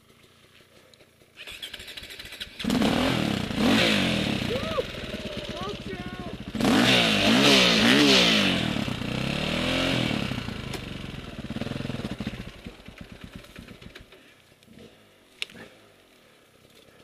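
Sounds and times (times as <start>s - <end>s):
dirt bike engine revving: 1.4s - 14.0s.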